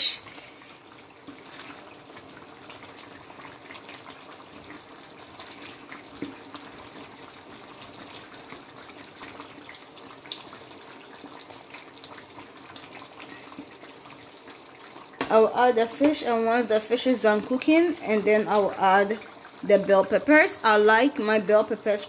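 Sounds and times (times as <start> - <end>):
stew bubbling and squelching: 0.0 - 15.2
wooden spatula stirring: 1.2 - 2.0.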